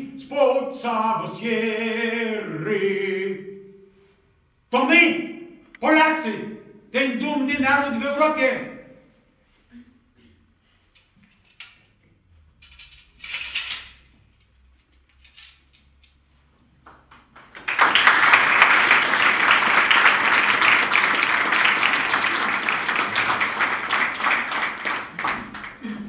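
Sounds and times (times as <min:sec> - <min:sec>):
audience applauding: 0:17.0 - 0:26.0.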